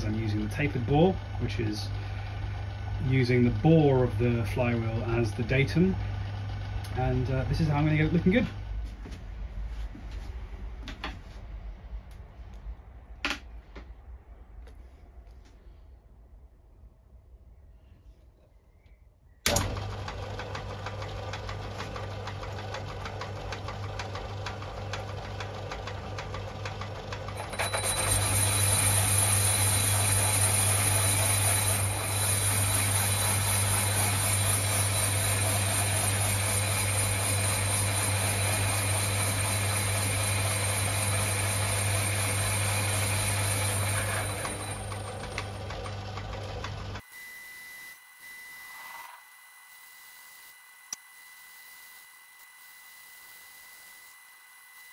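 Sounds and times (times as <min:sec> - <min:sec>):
lathe motor humming: 0:00.0 - 0:08.7, 0:19.5 - 0:47.1.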